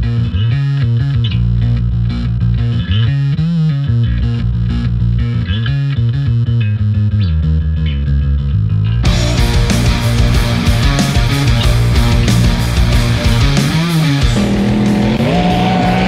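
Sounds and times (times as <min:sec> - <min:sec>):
heavy rock guitar riff: 0:09.0 - 0:16.0.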